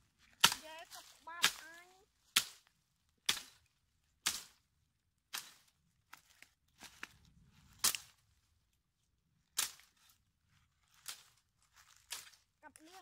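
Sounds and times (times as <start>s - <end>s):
blade chopping into branch: 0.4s - 1.7s, 2.3s - 4.6s, 5.3s - 5.7s, 7.8s - 8.2s, 9.6s - 10.0s.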